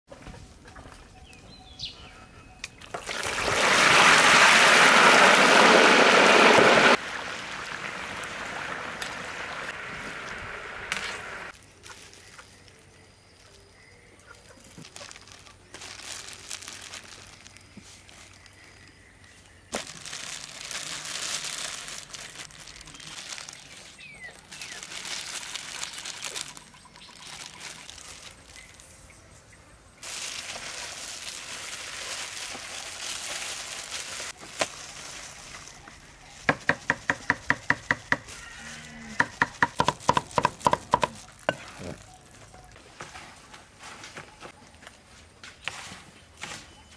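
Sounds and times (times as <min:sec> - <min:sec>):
rustling of vegetables: 0:03.0 - 0:29.0, 0:30.0 - 0:46.9
pouring splashing hiss: 0:03.1 - 0:11.5.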